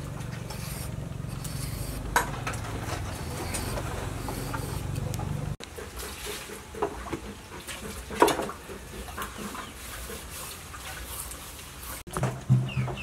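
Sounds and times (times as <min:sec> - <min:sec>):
peeler scraping gourd skin: 0:00.3 - 0:02.2, 0:02.8 - 0:05.3
chickens clucking: 0:02.8 - 0:10.5.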